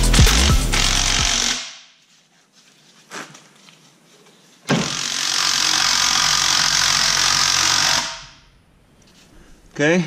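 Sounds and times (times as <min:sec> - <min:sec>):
transmission jack mechanical noise: 0:00.0 - 0:01.6.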